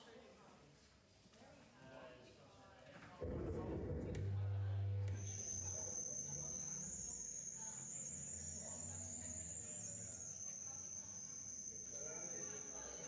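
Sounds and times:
faint low hum: 2.8 - 13.0
high-pitched whine: 3.2 - 13.0.

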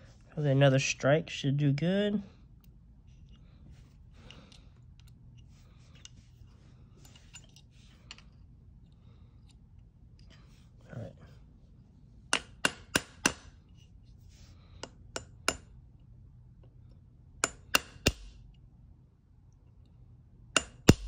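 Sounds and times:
hammer tapping metal punch: 12.3 - 13.5, 14.8 - 15.7, 17.4 - 18.3, 20.6 - 21.0.

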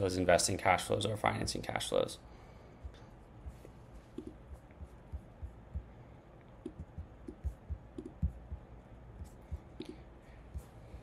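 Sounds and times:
computer mouse clicks: 4.1 - 4.4, 6.5 - 8.3, 9.2 - 10.0.

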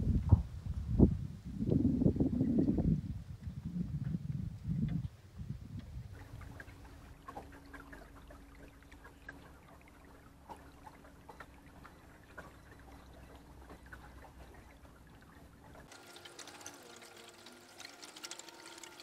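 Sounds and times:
water lapping against boat hull: 3.4 - 19.0.

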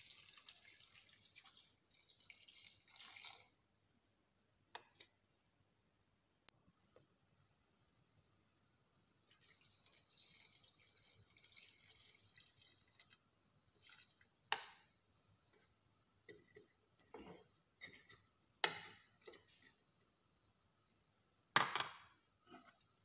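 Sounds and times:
water splashing into metal pot: 0.0 - 3.6, 9.3 - 14.3
wooden spoon stirring pot: 15.4 - 20.1, 22.4 - 23.0.

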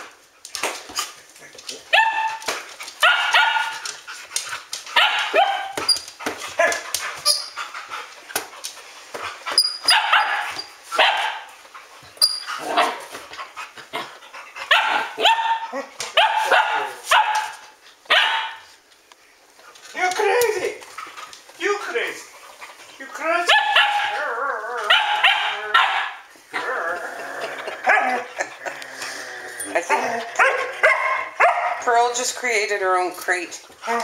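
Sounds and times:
dogs barking and yipping: 1.8 - 18.7, 22.6 - 28.7, 29.6 - 31.9.

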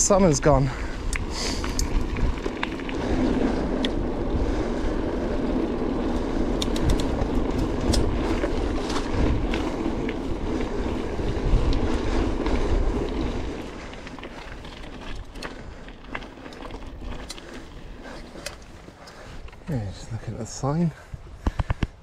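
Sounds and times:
bike and stones rattling: 0.0 - 22.0
bike tyres rolling over gravel: 0.0 - 22.0
wind buffeting microphone: 0.0 - 22.0.

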